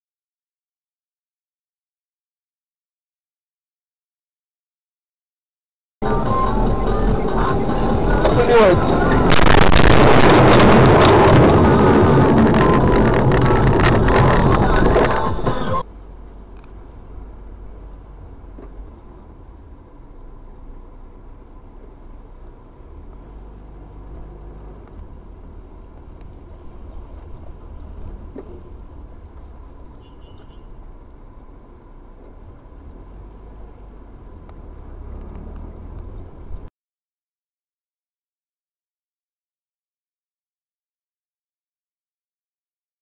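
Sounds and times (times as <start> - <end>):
car interior road rumble: 6.0 - 36.7.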